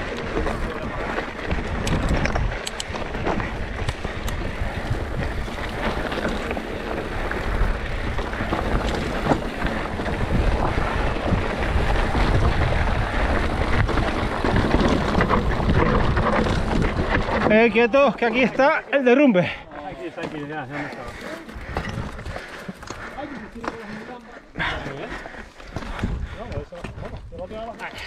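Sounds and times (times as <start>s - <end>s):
wind buffeting microphone: 0.0s - 18.2s, 20.8s - 23.2s, 24.6s - 27.7s
tyres crunching over loose stones: 0.0s - 19.1s, 19.8s - 28.0s
bike rattling: 0.0s - 28.0s.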